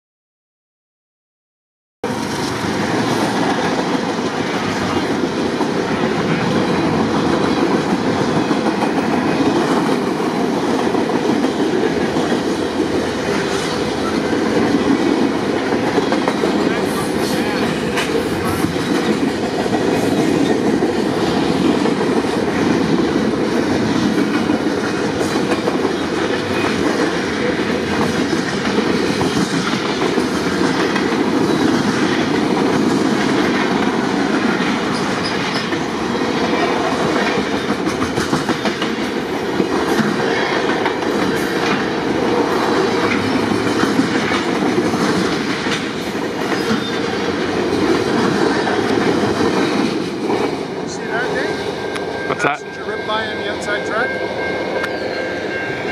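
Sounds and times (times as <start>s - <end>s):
freight train rolling past: 2.0s - 55.9s
train wheel clicks: 36.5s - 50.7s.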